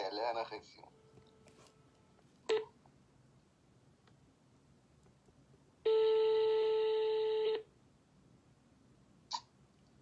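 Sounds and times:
phone ringing tone beep: 2.5s - 2.8s, 5.9s - 7.7s.

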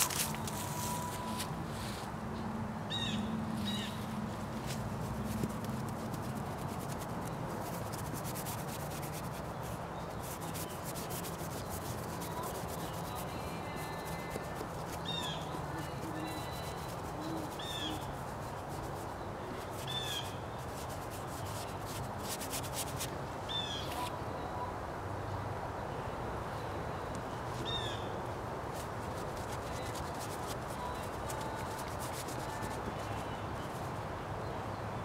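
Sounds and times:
paintbrush scrubbing on board: 4.6s - 23.1s, 28.7s - 33.9s
bird calling: 15.0s - 18.1s.

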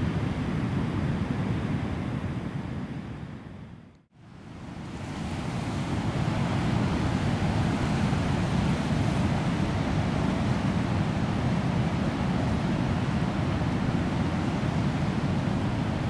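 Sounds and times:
sea surf washing over rocks: 4.8s - 16.0s.

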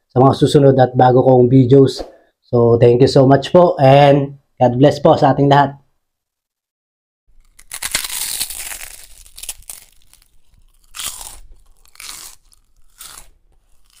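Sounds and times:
crab shells crunching while chewing: 7.3s - 14.0s.

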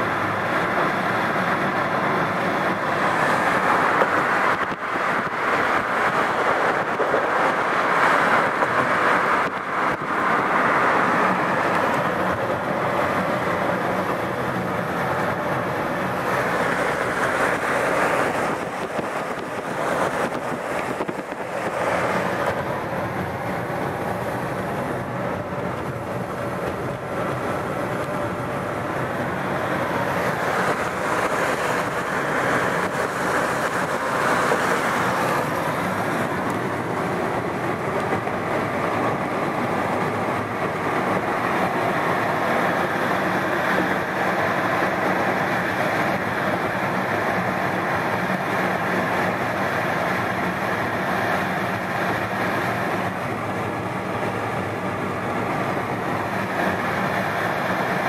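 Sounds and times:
car road noise tyres and wind: 0.0s - 58.0s.

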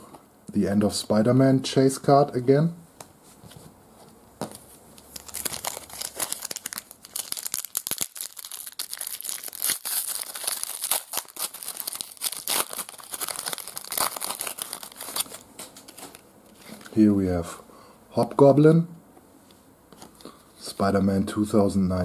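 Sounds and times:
foil wrapper tearing and crinkling: 5.0s - 16.2s.

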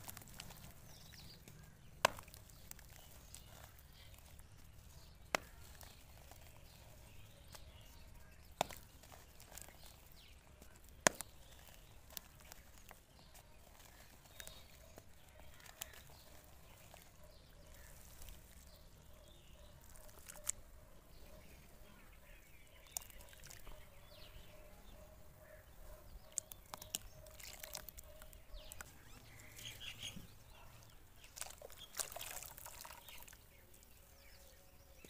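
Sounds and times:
dirt pieces cracking: 0.0s - 24.4s, 25.4s - 34.4s
dry dirt crumbling in hands: 0.0s - 35.0s.

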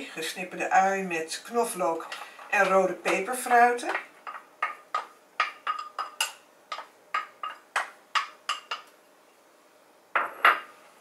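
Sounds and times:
spatula knocking against bowl: 2.6s - 8.9s.

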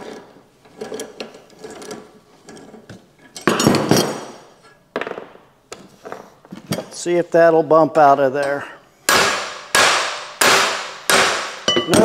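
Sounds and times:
metal tools clinking on workbench: 11.7s - 12.0s.

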